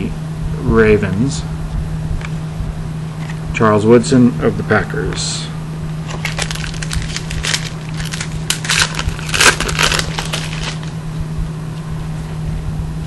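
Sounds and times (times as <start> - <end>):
low electrical hum: 0.0 - 13.0
trading cards rustling and clicking: 6.1 - 10.9.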